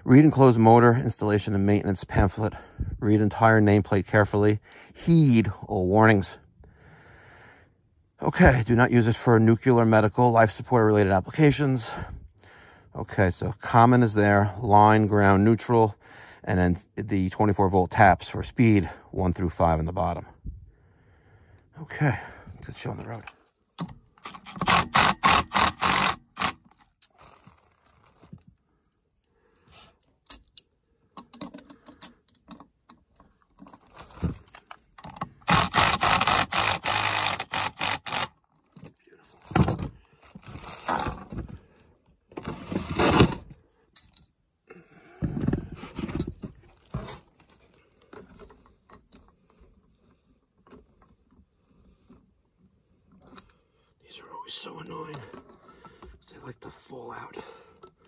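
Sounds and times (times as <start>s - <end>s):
impact driver hammering bolts: 23.8s - 26.6s.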